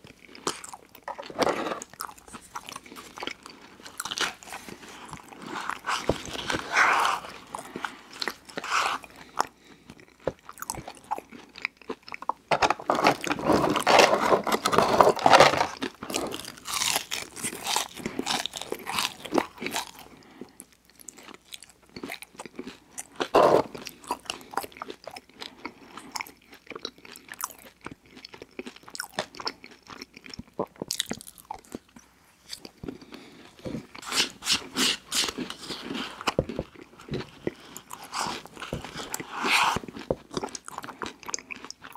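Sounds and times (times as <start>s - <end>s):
chewing and crunching: 0.0s - 41.9s
plastic spoon scraping paper cup: 1.2s - 2.5s, 4.4s - 9.1s, 12.7s - 16.3s, 23.3s - 23.8s, 37.3s - 40.0s.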